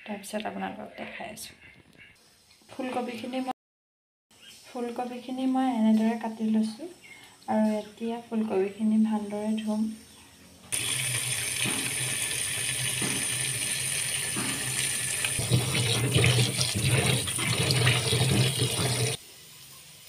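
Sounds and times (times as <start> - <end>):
tap water running into bowl: 10.7 - 19.2
water splashing: 10.8 - 19.2.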